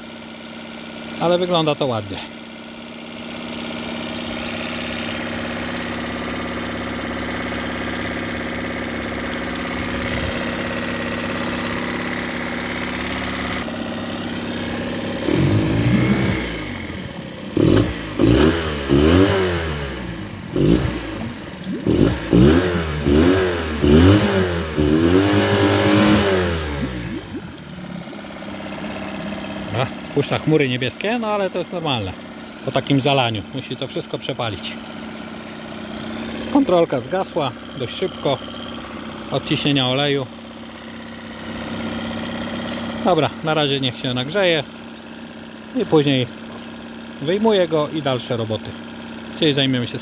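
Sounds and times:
outboard motor idling and revving: 0.0 - 50.0
water churning in barrel: 20.8 - 23.1, 25.6 - 31.6.

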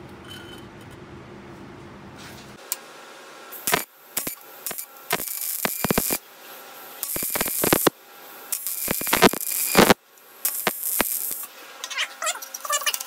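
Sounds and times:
welding arc hissing and crackling: 3.5 - 11.6.

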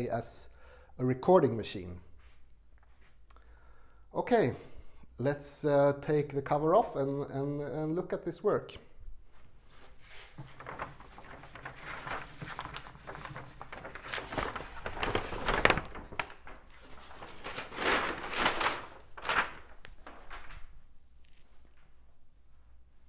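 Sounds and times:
paper rustling and crinkling: 9.4 - 22.0.

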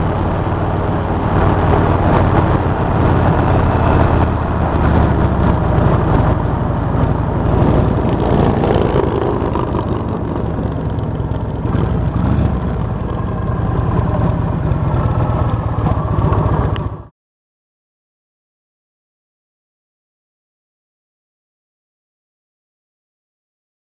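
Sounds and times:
motorcycle engine cruising: 0.0 - 17.1
road noise: 0.0 - 17.1
wind noise: 0.0 - 17.1.

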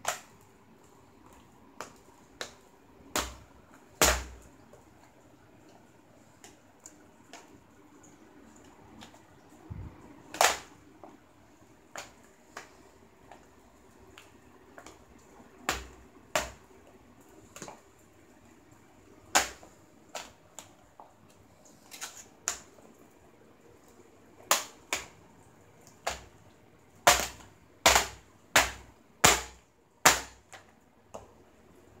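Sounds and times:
plastic laptop casing cracking: 10.3 - 10.7, 27.0 - 30.7.

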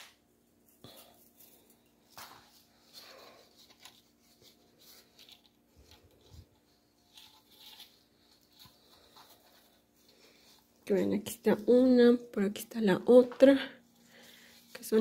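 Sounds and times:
faint steady hum: 0.0 - 15.0
faint rustling: 0.7 - 12.4.

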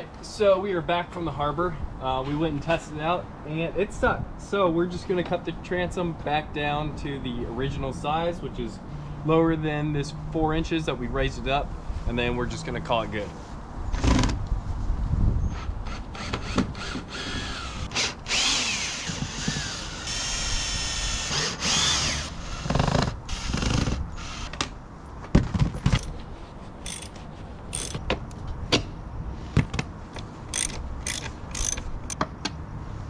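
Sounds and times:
cordless drill whine: 15.6 - 24.5, 30.5 - 31.8
sharp clicks and knocks: 24.5 - 26.2, 29.6 - 32.6.

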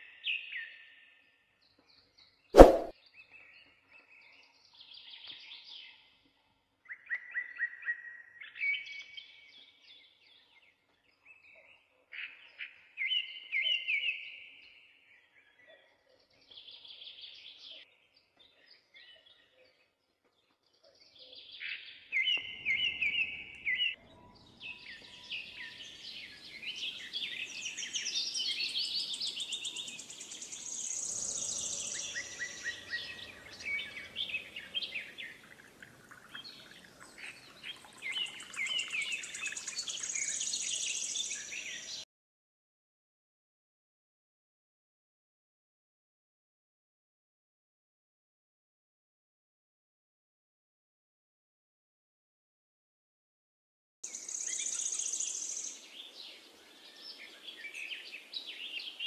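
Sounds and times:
birds chirping and trilling: 21.0 - 42.0, 54.1 - 59.0.

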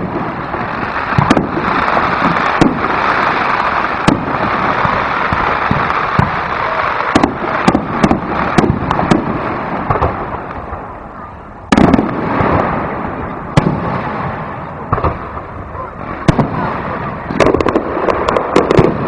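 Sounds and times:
fireworks boom: 0.0 - 19.0
fireworks crackle: 0.0 - 19.0
fireworks shells bursting: 17.3 - 19.0.

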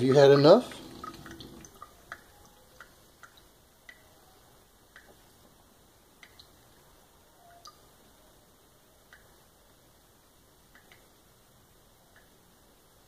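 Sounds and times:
water dripping into metal sink: 0.0 - 4.1, 4.9 - 5.3, 6.2 - 6.7, 7.4 - 7.9, 10.6 - 11.1.

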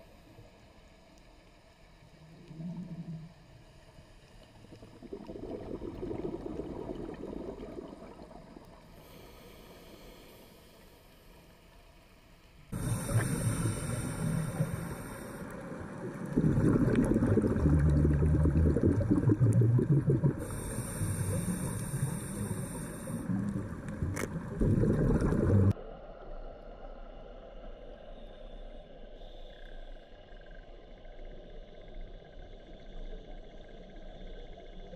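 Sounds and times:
gurgling exhaust bubbles: 4.8 - 8.6, 12.8 - 25.8
hissing regulator inhale: 8.9 - 11.5, 12.8 - 15.8, 20.4 - 24.3.

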